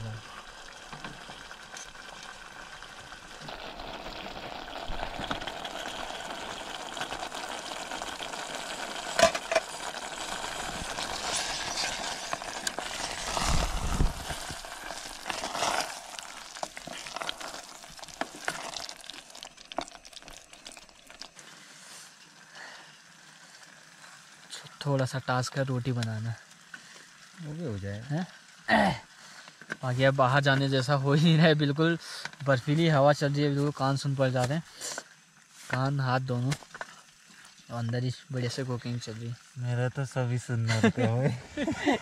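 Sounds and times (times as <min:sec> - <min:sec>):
gravy sizzling in a pan: 0:00.0 - 0:42.0.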